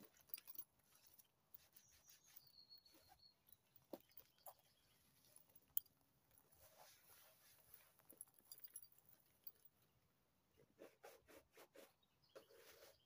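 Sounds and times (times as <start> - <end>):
thin high bird whistle: 1.6 - 3.6.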